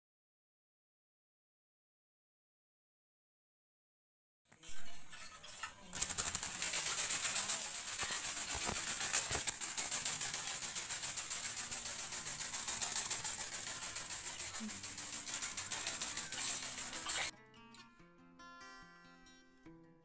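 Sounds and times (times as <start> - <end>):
toy ornithopter wings fluttering: 5.1 - 17.3.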